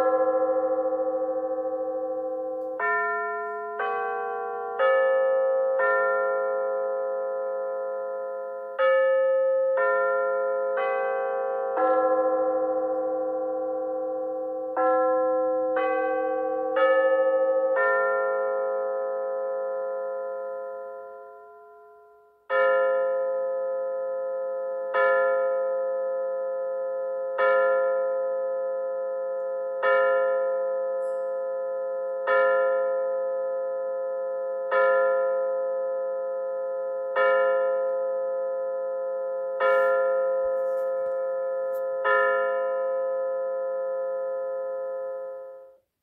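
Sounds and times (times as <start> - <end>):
clock bell strokes: 27.4 - 33.4, 36.8 - 45.6.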